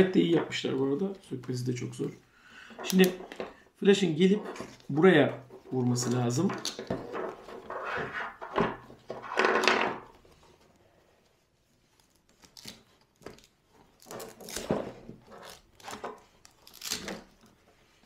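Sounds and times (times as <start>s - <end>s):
velcro strip ripping: 12.0s - 14.7s, 15.3s - 17.4s.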